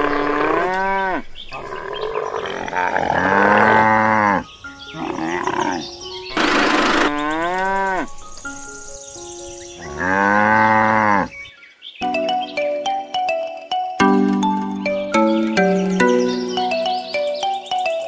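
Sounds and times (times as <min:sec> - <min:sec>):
cow mooing: 0:00.0 - 0:08.1, 0:09.9 - 0:11.4
light background music: 0:03.2 - 0:11.2, 0:12.0 - 0:18.0
rough descending call: 0:12.0 - 0:18.0.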